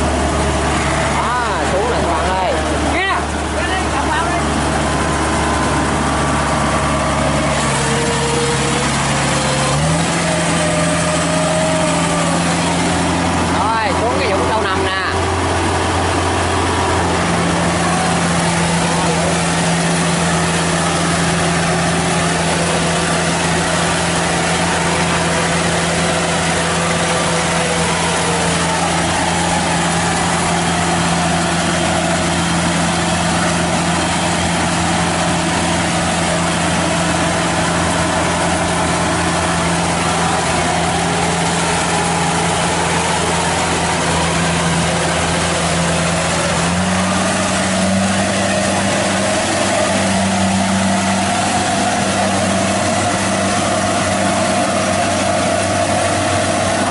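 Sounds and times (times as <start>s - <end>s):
combine harvester diesel engine: 0.0s - 56.9s.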